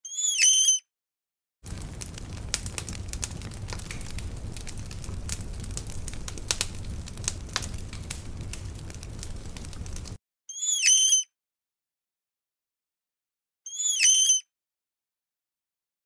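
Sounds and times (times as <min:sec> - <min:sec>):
fire crackling: 0:01.6 - 0:10.2.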